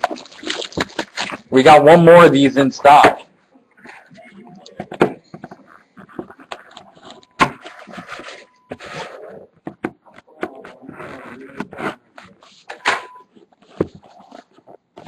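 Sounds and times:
packaging crinkling: 0.0 - 1.5
packaging rustling and scraping: 0.0 - 1.6, 4.9 - 9.5, 10.5 - 15.0.

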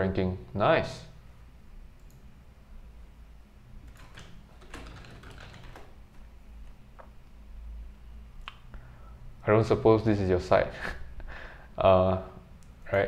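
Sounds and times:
computer keyboard typing: 2.0 - 2.2, 3.8 - 6.3.

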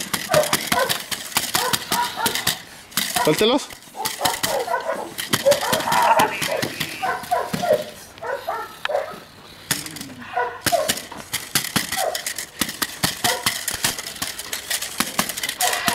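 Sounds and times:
dogs barking: 0.2 - 9.3, 10.2 - 11.1, 11.9 - 12.3, 13.2 - 13.6, 15.6 - 15.9
sharp clicks and knocks: 9.7 - 15.9.

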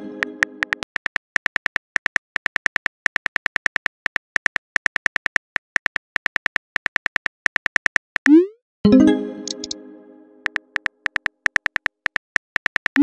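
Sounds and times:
phone keyboard typing clicks: 0.2 - 8.2, 9.4 - 9.8, 10.5 - 13.0.

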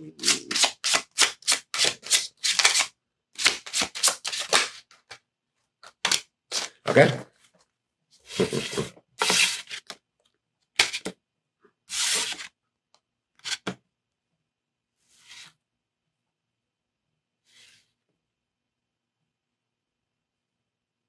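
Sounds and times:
cards sliding on wooden table: 8.2 - 10.0, 11.9 - 12.5, 13.4 - 13.8, 15.1 - 15.6, 17.5 - 18.0.

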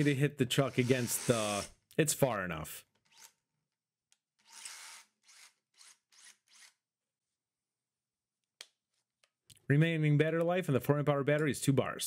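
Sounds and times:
drill bit scraping in concrete hole: 0.0 - 1.7, 4.4 - 6.8.

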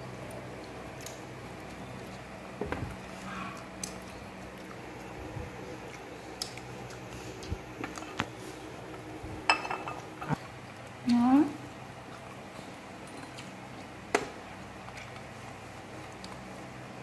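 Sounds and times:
steady low hum: 0.0 - 17.0
soft squishing handling sounds: 11.8 - 17.0.

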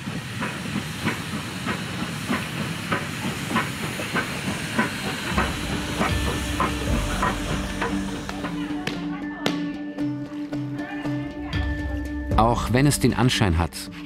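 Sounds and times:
steam hiss: 0.0 - 8.8
steam locomotive chuffing: 0.0 - 9.2
steady tones: 1.9 - 9.4
low rumble: 5.3 - 8.8.

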